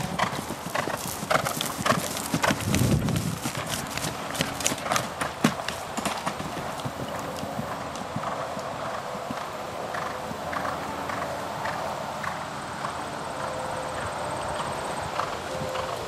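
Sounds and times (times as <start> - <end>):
hooves thudding on turf: 0.0 - 16.0.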